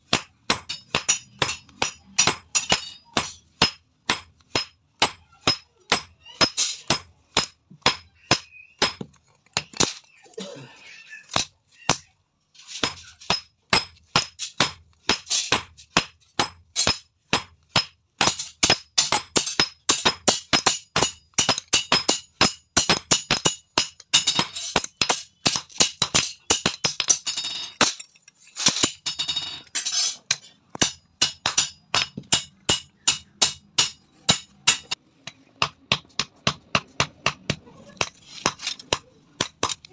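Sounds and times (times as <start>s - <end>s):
hammer striking steel on anvil: 0.1s - 9.0s, 12.8s - 39.9s.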